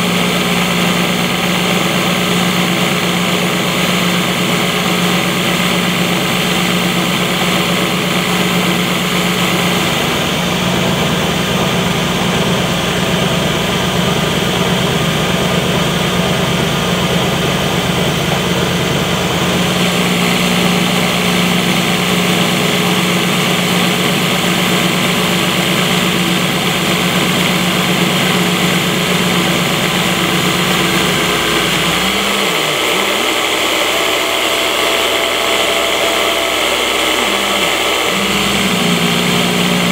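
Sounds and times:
milling machine hum: 0.0s - 39.9s
hiss of cutting metal chips: 19.7s - 39.9s.

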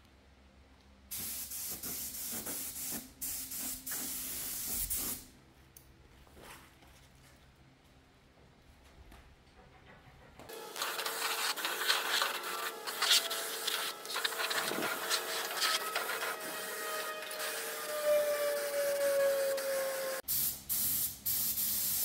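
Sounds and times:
spray gun hissing: 1.1s - 5.3s, 10.6s - 22.0s
falling whine: 10.6s - 20.2s.

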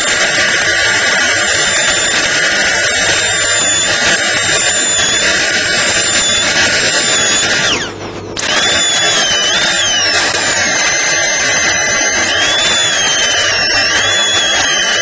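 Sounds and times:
dental drill whining: 0.0s - 15.0s.

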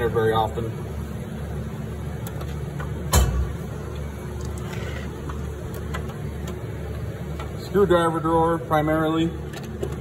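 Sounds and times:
low background hum: 0.0s - 10.0s
metal drawer thump: 3.1s - 3.6s.

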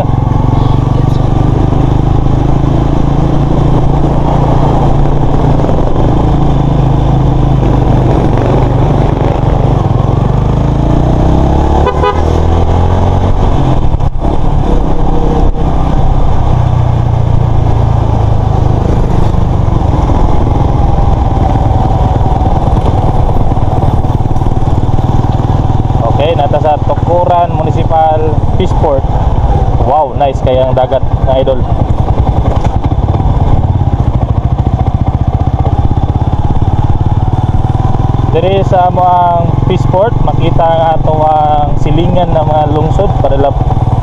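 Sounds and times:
heavy rushing noise: 0.0s - 44.0s
motorcycle engine running: 0.0s - 44.0s
horn toot: 11.7s - 12.5s.

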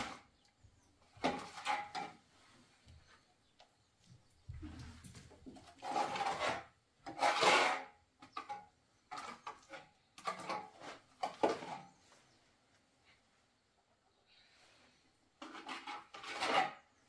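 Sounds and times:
trowel scraping plaster: 0.0s - 0.4s, 1.2s - 2.2s, 5.7s - 12.0s, 15.4s - 17.0s.

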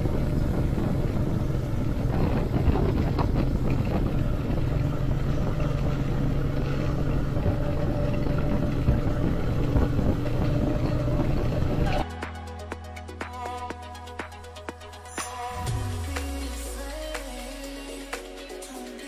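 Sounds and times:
wind noise: 0.0s - 12.1s
motorcycle engine running: 0.0s - 12.3s.

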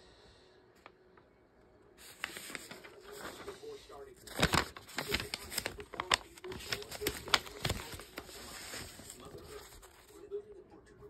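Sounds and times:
paper rustling: 2.0s - 10.3s.

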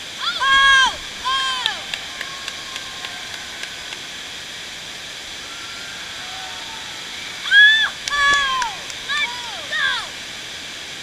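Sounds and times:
rushing water: 0.0s - 11.0s
high-pitched shout: 0.2s - 3.6s, 5.5s - 10.1s.

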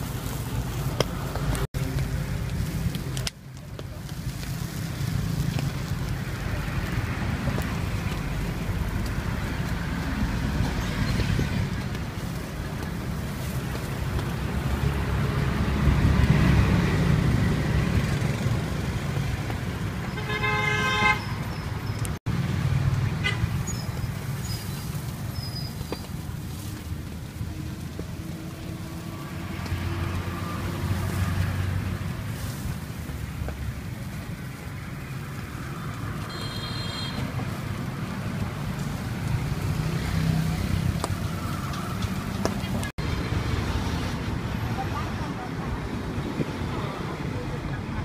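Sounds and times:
street traffic rumble: 0.0s - 48.0s
vehicle horn toot: 20.1s - 21.4s, 36.3s - 37.3s.

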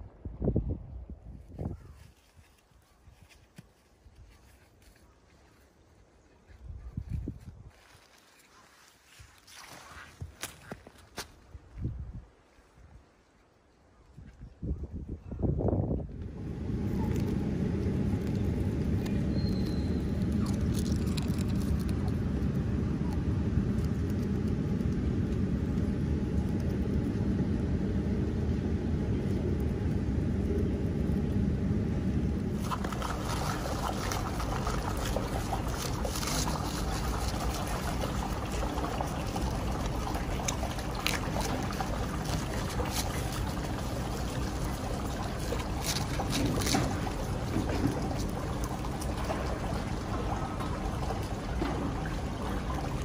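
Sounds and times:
low rumble: 15.1s - 53.0s
animal chewing leaves: 16.2s - 53.0s.

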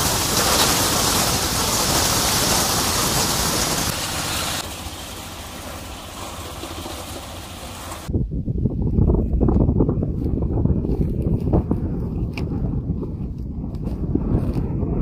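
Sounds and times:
thresher rushing and rattling: 0.0s - 8.1s.

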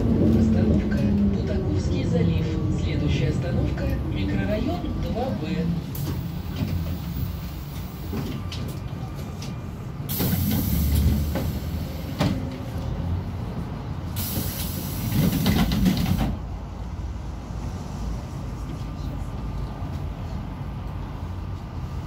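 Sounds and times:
trolleybus cabin rumble: 0.0s - 22.0s
loud bursts of hiss: 14.2s - 15.5s.

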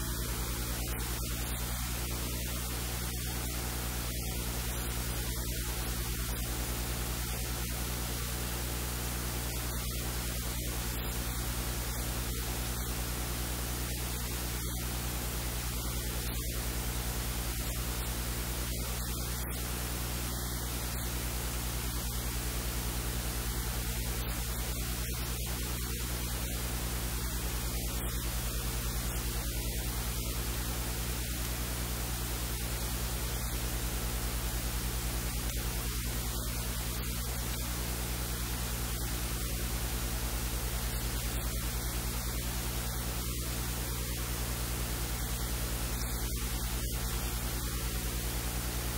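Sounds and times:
electrical hiss: 0.0s - 48.9s
low mains hum: 0.0s - 48.9s.

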